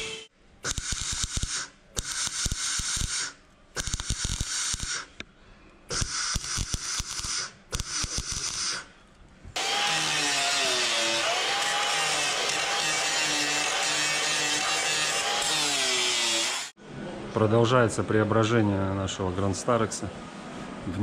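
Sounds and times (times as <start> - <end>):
welder crackling and spitting: 0.6 - 5.1, 5.9 - 8.9.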